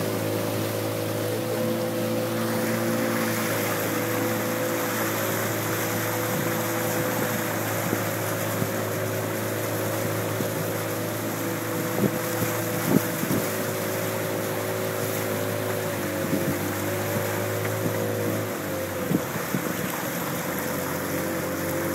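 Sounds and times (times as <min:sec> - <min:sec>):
boat engine running: 0:00.0 - 0:21.9
rushing water: 0:00.0 - 0:21.9
wind noise: 0:11.7 - 0:13.6.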